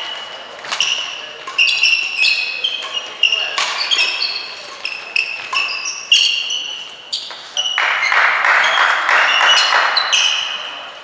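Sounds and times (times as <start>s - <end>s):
court shoes squeaking on floor: 0.0s - 11.0s
racket hitting shuttlecock: 0.6s - 6.5s
applause: 7.8s - 10.0s.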